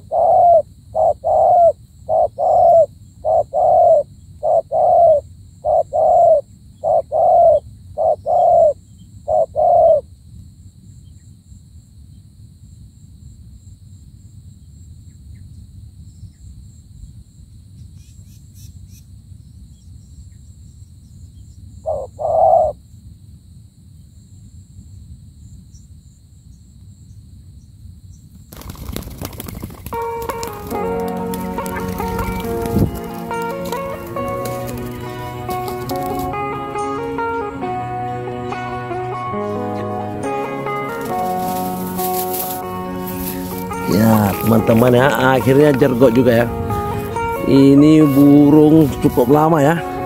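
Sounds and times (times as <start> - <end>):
dove cooing: 0.0 - 10.0, 21.9 - 22.8, 28.6 - 38.2.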